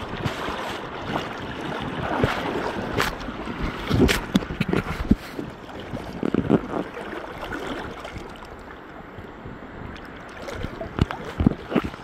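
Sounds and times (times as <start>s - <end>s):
river water rushing and gurgling: 0.0s - 12.0s.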